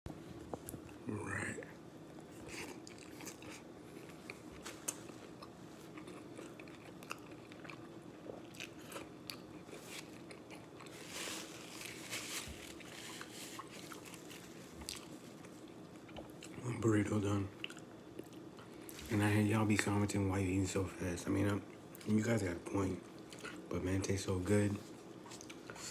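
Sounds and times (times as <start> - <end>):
man chewing wetly: 2.1 - 11.1, 12.6 - 16.6, 17.6 - 19.0, 25.2 - 25.9.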